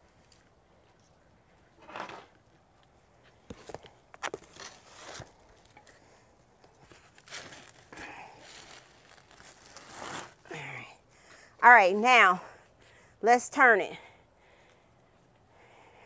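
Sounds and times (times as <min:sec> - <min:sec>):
cardboard rustling and scraping: 0:03.5 - 0:05.7, 0:08.5 - 0:10.4.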